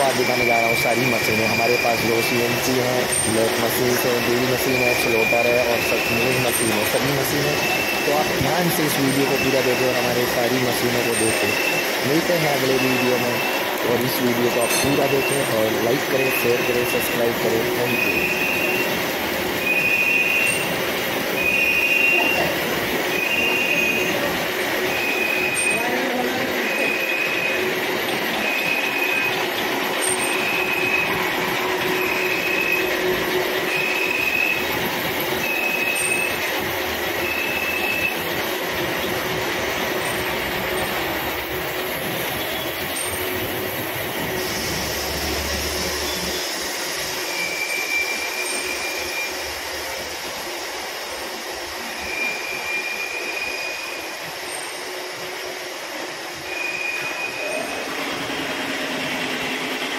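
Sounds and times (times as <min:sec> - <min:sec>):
high pulsing squeal: 0:00.0 - 0:59.9.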